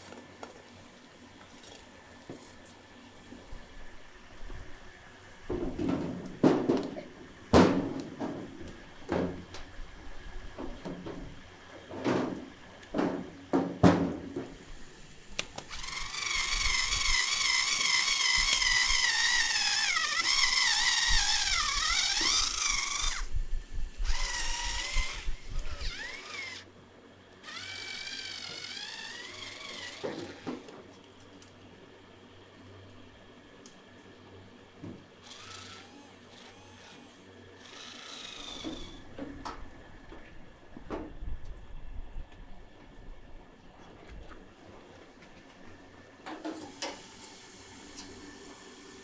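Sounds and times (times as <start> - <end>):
knocks and clanks on steel frame: 5.5 - 9.7, 10.6 - 14.6
cordless screwdriver whirring: 15.6 - 23.3, 23.9 - 26.7, 27.4 - 30.7, 35.2 - 39.0.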